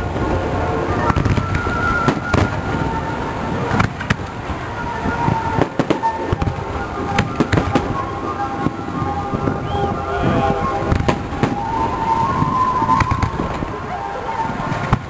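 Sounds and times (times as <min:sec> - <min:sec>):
music playing: 0:00.0 - 0:15.0
firework shells bursting: 0:03.6 - 0:13.8.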